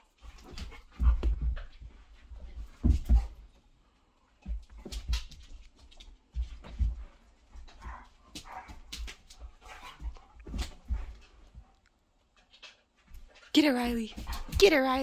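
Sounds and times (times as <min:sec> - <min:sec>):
dogs scuffling on wooden floor: 0:04.4 - 0:15.0.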